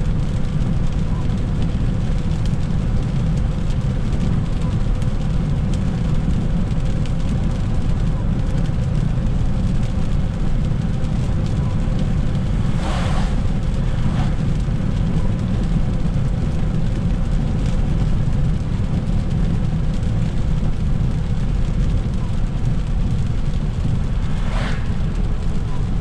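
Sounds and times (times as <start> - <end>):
car road noise on wet road: 0.0 - 26.0
brief hiss: 12.6 - 14.4.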